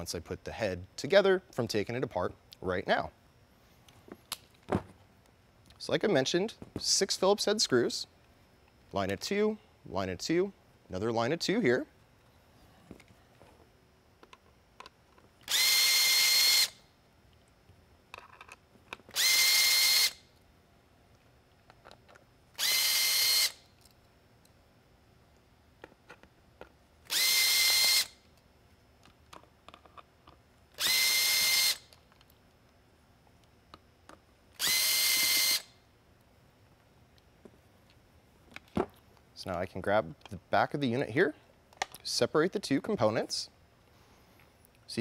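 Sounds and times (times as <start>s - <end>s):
power screwdriver motor whine: 15.4s - 16.8s, 19.1s - 20.3s, 22.5s - 23.7s, 27.0s - 28.2s, 30.7s - 32.0s, 34.5s - 35.8s.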